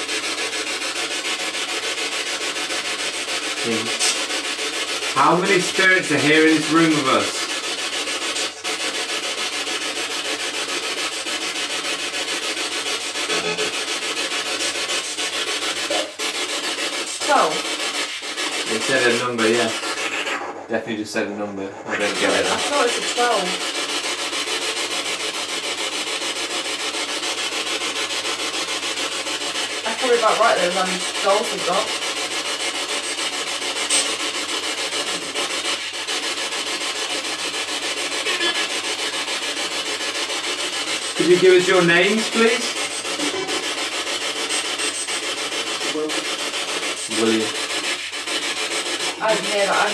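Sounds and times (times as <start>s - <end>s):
pulsing radio static: 3.5s - 4.5s, 5.1s - 9.1s, 12.7s - 25.4s, 28.3s - 32.3s, 37.2s - 40.0s, 41.1s - 49.9s.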